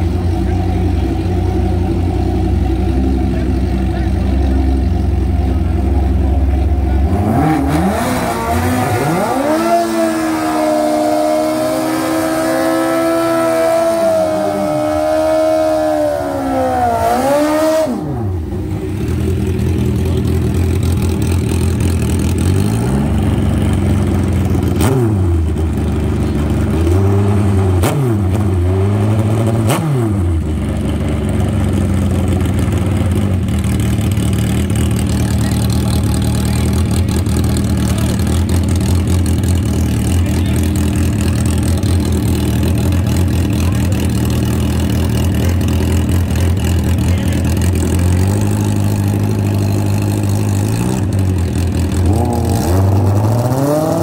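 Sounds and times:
motorcycle engine idling and revving: 0.0s - 54.0s.

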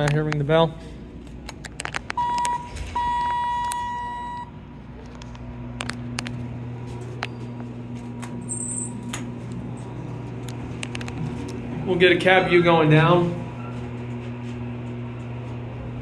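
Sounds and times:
steady low hum: 0.0s - 16.0s
elevator chime beeps: 2.2s - 4.6s.

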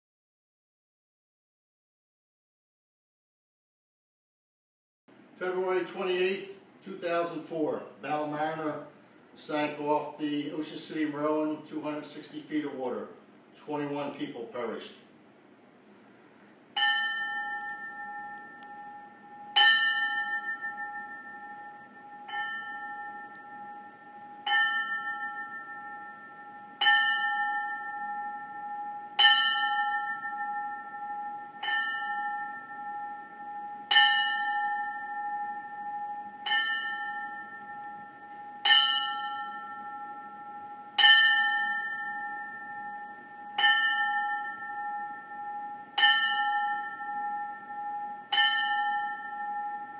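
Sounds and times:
ship's bell tolling: 16.8s - 49.9s.

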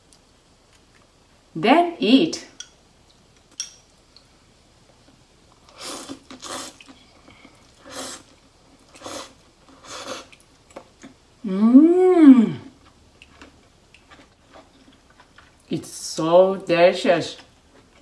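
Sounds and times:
noodles being slurped: 5.7s - 10.4s
person humming mmm: 11.4s - 12.8s.

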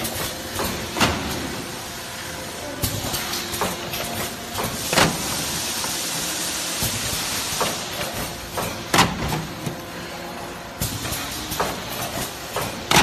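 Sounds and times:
sealing machine hissing: 4.2s - 8.5s.

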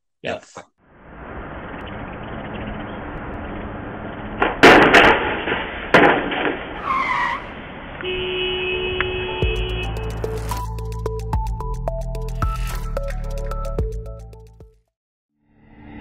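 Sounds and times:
street traffic: 0.8s - 11.1s
vehicle crashing: 1.2s - 8.0s.

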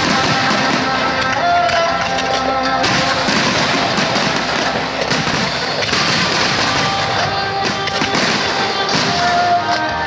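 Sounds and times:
firework shells bursting: 0.0s - 9.8s
firework crackling: 0.0s - 10.0s
music playing: 0.0s - 10.0s.

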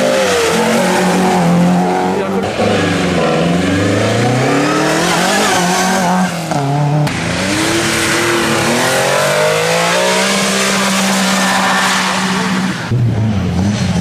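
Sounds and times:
rally car engines revving: 0.0s - 14.0s.

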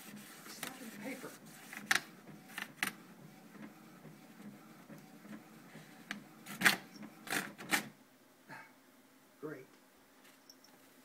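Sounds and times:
printer clacks: 0.0s - 7.9s
printer mechanical whirr: 0.0s - 8.0s.

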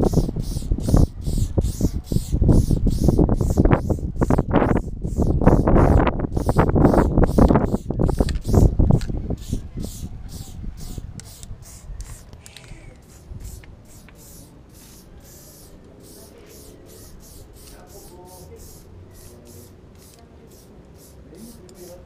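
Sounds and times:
spray can hissing in bursts: 0.0s - 22.0s.

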